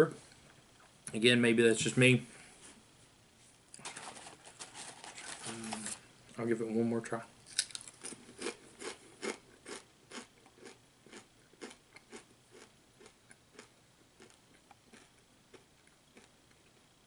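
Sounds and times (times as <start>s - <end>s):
person chewing crunchy chip: 7.5s - 16.8s.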